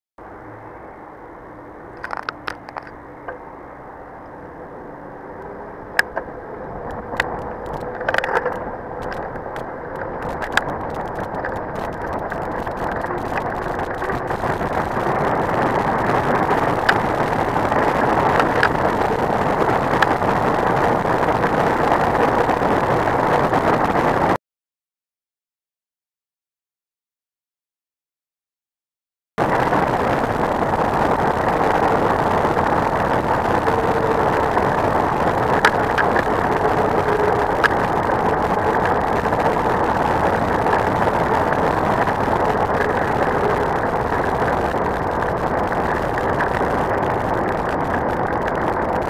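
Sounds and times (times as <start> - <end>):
wind rush: 0.2 - 24.4, 29.4 - 49.0
bike clicks and knocks: 2.0 - 3.5, 6.0 - 19.2, 35.5 - 37.9.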